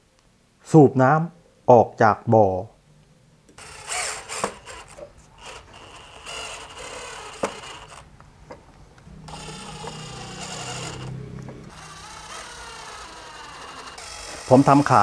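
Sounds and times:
electric screwdriver driving screws: 0:03.6 - 0:08.1, 0:09.3 - 0:15.0.

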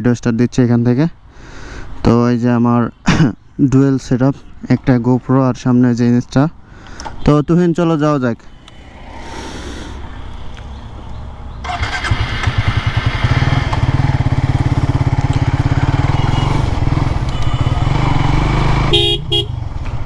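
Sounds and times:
motorcycle engine running: 0:11.6 - 0:20.0.

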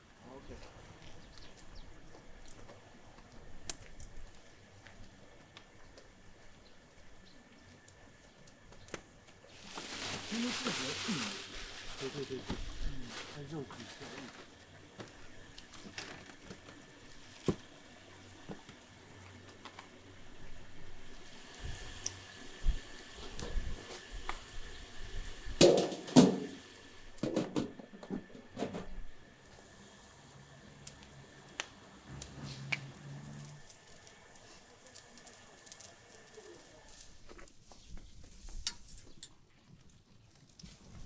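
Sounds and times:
plastic crinkling: 0:09.5 - 0:14.6, 0:33.3 - 0:41.0.

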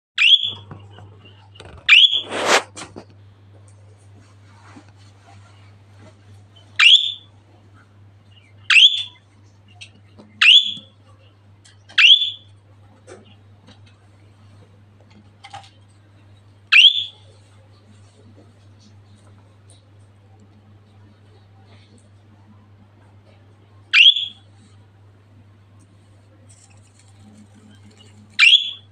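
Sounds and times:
faint steady hum: 0:00.2 - 0:28.9
rasping noise: 0:01.6 - 0:03.0
budgerigar chirps: 0:08.6 - 0:09.2.

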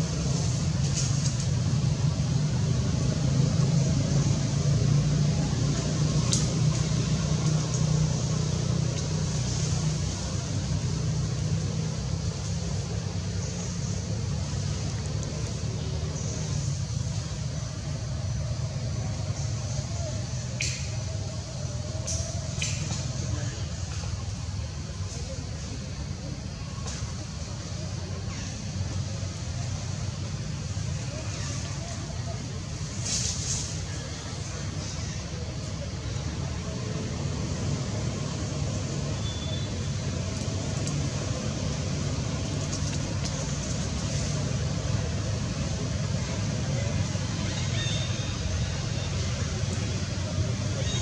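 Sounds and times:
short sharp hisses: 0:33.0 - 0:33.8.

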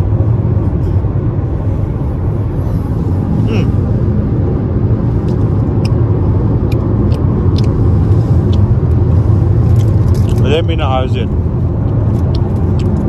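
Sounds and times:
car cabin road noise: 0:00.0 - 0:13.0.

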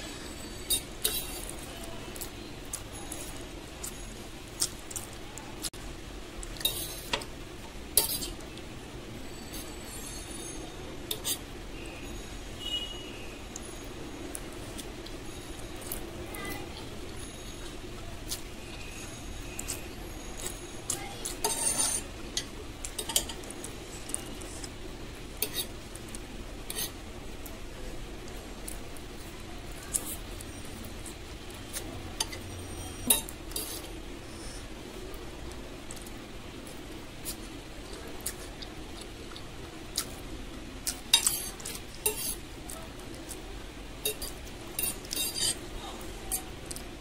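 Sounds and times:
fork scraping on a plate: 0:00.6 - 0:01.6, 0:08.0 - 0:08.4, 0:11.1 - 0:11.5, 0:21.4 - 0:22.1, 0:25.4 - 0:25.7, 0:26.7 - 0:27.0, 0:31.7 - 0:34.7, 0:41.2 - 0:42.4, 0:44.0 - 0:45.6
fork clinking on plate: 0:08.0 - 0:08.3, 0:11.1 - 0:11.4, 0:25.4 - 0:25.7, 0:41.2 - 0:42.4, 0:44.0 - 0:45.6.

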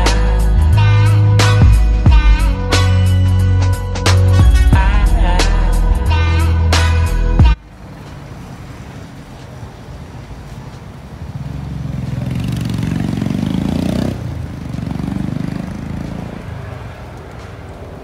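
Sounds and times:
vehicle passing: 0:07.6 - 0:18.0.

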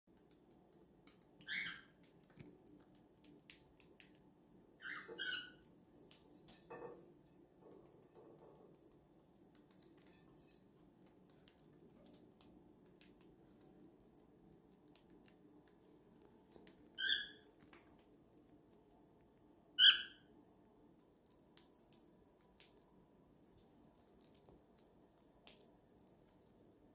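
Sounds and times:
cockatiel chirps: 0:01.4 - 0:02.0, 0:04.8 - 0:05.7, 0:17.0 - 0:17.5, 0:19.8 - 0:20.3.

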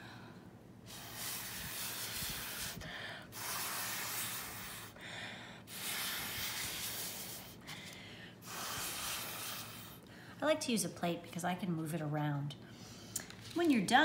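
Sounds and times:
air blown through a straw: 0:00.9 - 0:05.0, 0:05.7 - 0:07.6, 0:08.4 - 0:10.0.

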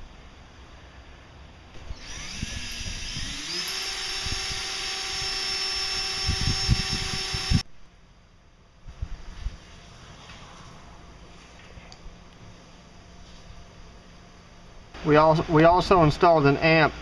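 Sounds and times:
cordless drill whining: 0:01.8 - 0:07.6.

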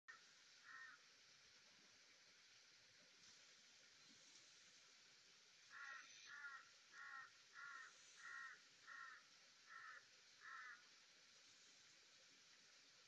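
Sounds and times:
light hiss: 0:00.1 - 0:13.0
bird harsh calls: 0:00.6 - 0:01.0, 0:05.7 - 0:10.8.

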